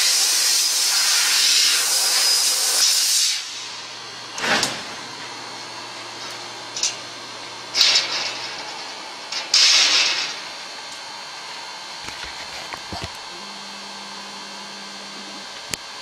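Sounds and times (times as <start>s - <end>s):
faint low machine hum: 3.5s - 16.0s.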